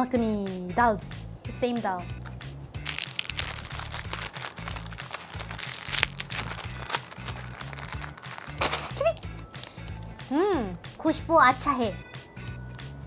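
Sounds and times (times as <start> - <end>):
background music: 0.0 - 13.0
plastic snack packet crinkling: 2.8 - 9.8.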